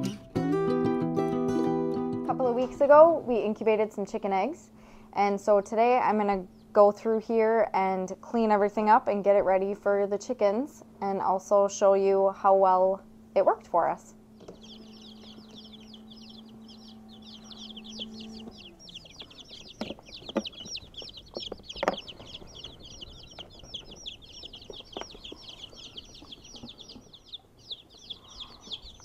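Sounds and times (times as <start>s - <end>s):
incubator fan hum: 2.3s - 29.0s
baby chicks peeping: 2.4s - 10.8s, 11.6s - 29.0s
knocks of plastic being handled: 19.8s - 22.5s.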